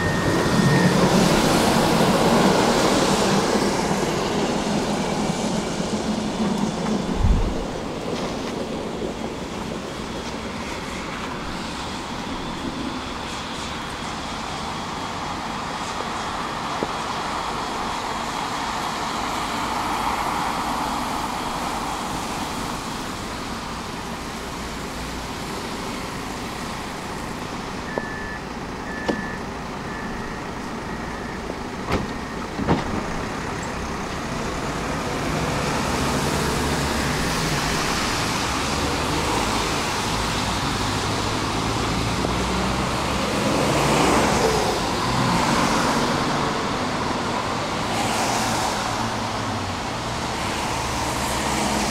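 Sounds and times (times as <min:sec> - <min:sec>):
tram door warning beeps: 0:00.0 - 0:02.2, 0:27.2 - 0:33.8
street traffic noise: 0:00.0 - 0:51.9.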